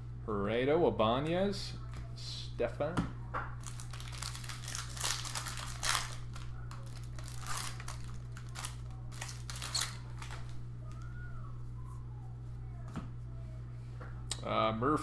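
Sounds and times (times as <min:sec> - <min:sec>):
steady low hum: 0:00.0 - 0:15.0
cards being handled: 0:03.6 - 0:11.1
foil wrappers crinkling: 0:03.6 - 0:11.1.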